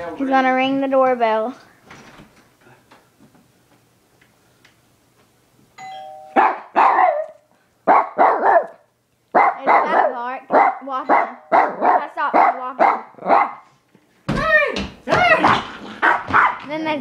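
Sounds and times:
two-note doorbell chime: 5.8 - 6.4
dog barking: 6.4 - 13.7, 15.4 - 16.7.

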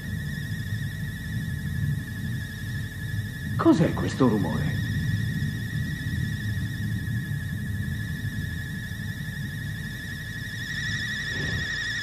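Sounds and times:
low continuous rumble: 0.0 - 12.0
high warbling whistle tone: 3.6 - 12.0.

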